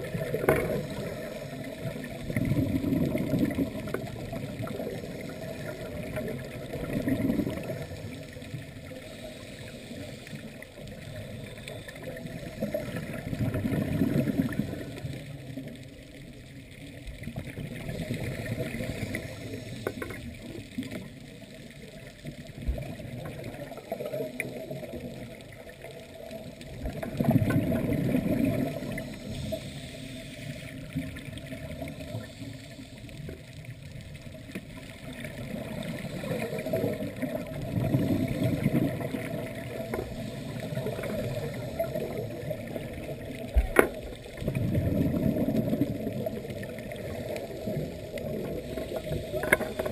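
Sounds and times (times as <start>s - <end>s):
steady hiss: 0.0s - 6.8s, 7.5s - 13.2s, 17.8s - 22.3s, 27.8s - 44.5s, 46.3s - 49.9s
underwater exhaled bubbles: 0.0s - 49.9s.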